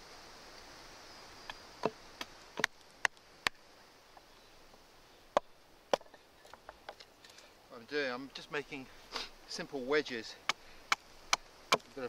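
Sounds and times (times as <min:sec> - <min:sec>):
blade chopping wood: 0:10.5 - 0:12.0.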